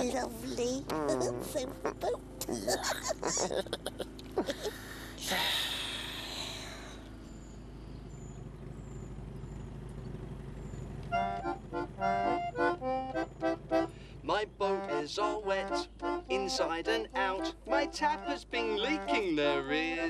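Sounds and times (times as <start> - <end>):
accordion tune: 11.0 - 20.0.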